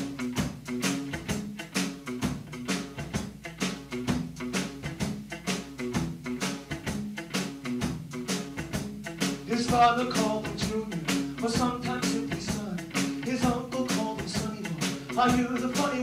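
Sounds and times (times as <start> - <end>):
drums keeping a beat: 0.0 - 16.0
rock band playing: 0.0 - 16.0
person singing: 9.4 - 16.0.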